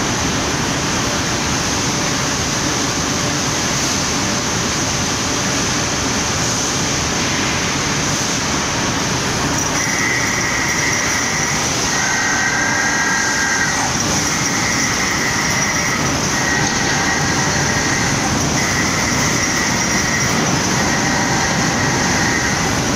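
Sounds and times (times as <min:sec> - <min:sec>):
steel mill machinery din: 0:08.5 - 0:22.9
high squealing tone: 0:09.6 - 0:22.9.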